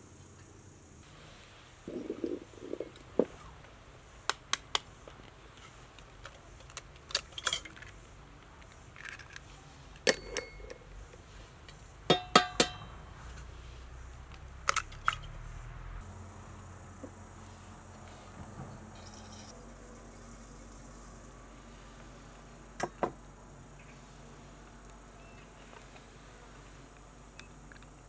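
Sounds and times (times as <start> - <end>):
bowl ringing: 10.1 - 10.8.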